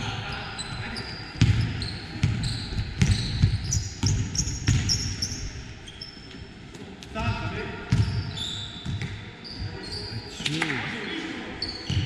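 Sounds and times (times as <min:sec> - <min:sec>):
sneaker squeaks: 0:00.2 - 0:06.5, 0:07.9 - 0:12.0
basketball bouncing on wooden floor: 0:01.4 - 0:05.0.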